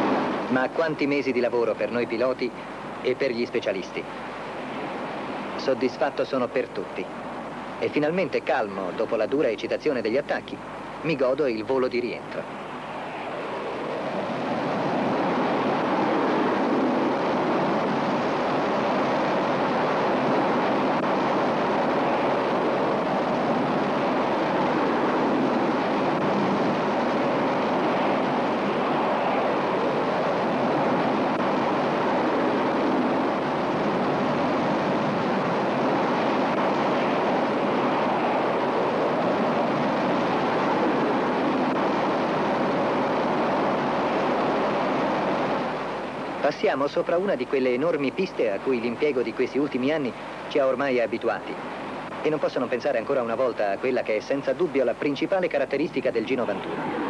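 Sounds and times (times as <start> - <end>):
jet engine rush: 0.0 - 57.0.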